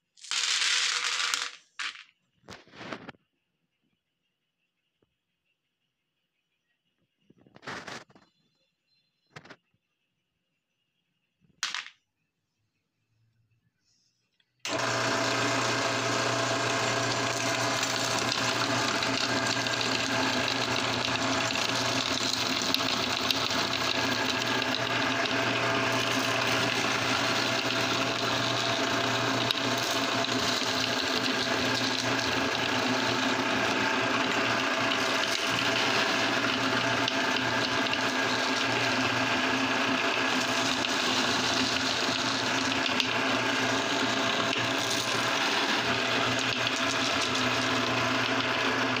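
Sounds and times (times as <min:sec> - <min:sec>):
meat grinder humming: 0:14.6 - 0:49.0.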